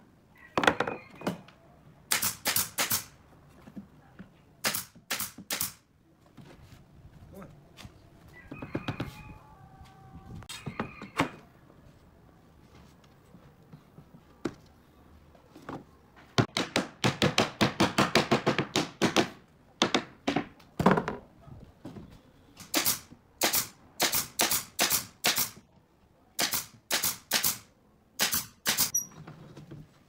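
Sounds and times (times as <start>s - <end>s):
nail gun firing: 2.1s - 3.2s, 4.6s - 5.8s, 22.6s - 25.6s, 26.4s - 29.0s.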